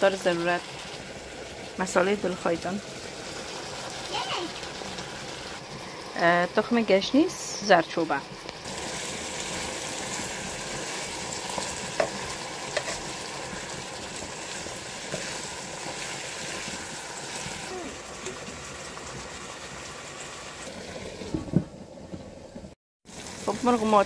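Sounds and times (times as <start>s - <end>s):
chicken sizzling in a pan: 0.0s - 21.4s, 23.1s - 24.0s
wooden spatula scraping pan: 10.8s - 13.6s
lid knocking on pan: 11.9s - 13.0s.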